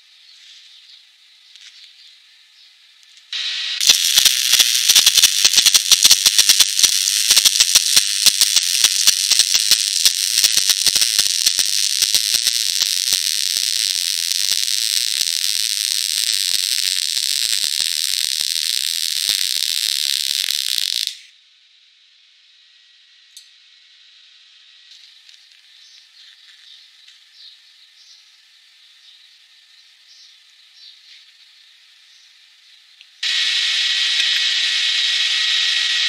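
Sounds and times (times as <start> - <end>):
welding arc crackling: 3.3 - 21.3, 33.2 - 36.0
welding hiss: 3.4 - 21.3, 33.2 - 36.0.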